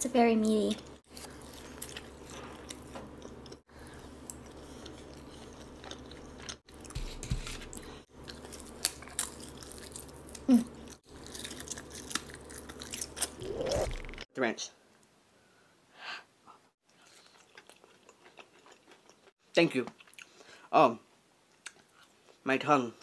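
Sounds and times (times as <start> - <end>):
chewing and mouth sounds: 0.8 - 14.2, 16.8 - 19.3
crunching of fried breading: 8.2 - 13.4.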